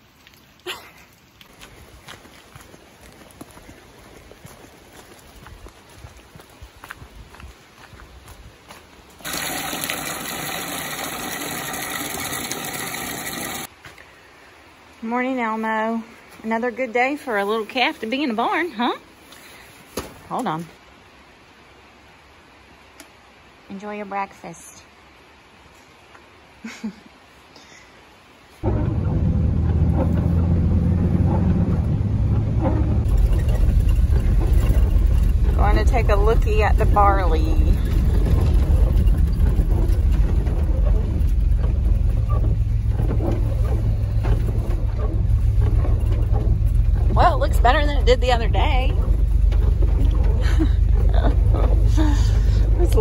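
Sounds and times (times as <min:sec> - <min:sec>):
water gushing into rubber bucket: 0:09.2 - 0:13.7
vehicle engine and road noise: 0:28.5 - 0:53.0.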